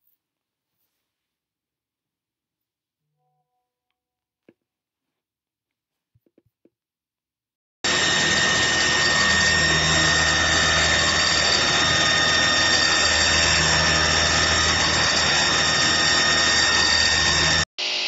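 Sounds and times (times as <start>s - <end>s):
metal cutting noise: 7.8s - 18.0s
milling spindle whine: 7.8s - 18.0s.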